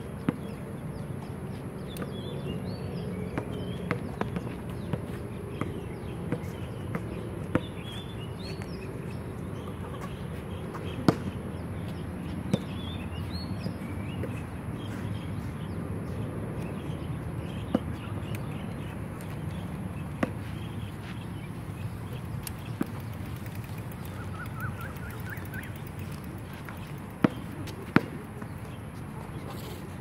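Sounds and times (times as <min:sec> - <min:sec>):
birds chirping: 0:00.0 - 0:30.0
basketball bouncing: 0:22.1 - 0:28.6.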